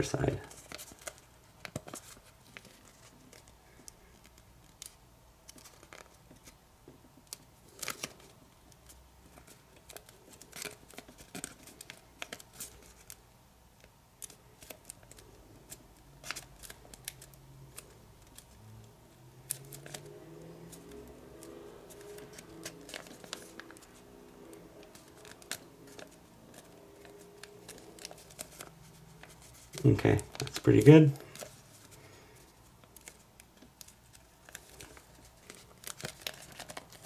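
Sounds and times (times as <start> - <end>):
thin paper crackling: 0.0 - 6.6, 14.2 - 18.6, 19.4 - 37.0.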